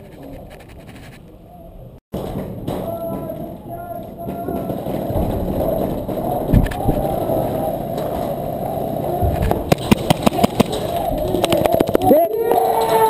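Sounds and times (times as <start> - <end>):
camera rubbing against clothing: 0.0 - 1.3.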